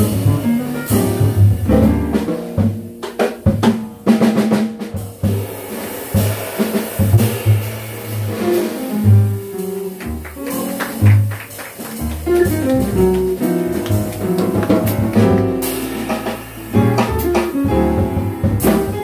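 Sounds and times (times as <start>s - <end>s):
drum kit with cymbals: 0.0s - 19.0s
piano: 0.0s - 19.0s
upright bass plucked: 12.0s - 19.0s.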